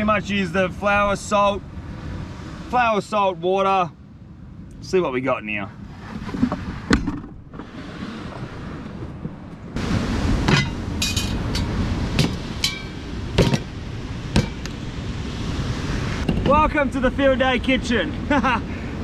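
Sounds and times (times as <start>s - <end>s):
wind: 0.0s - 19.0s
metal items clinking on table: 10.5s - 11.7s.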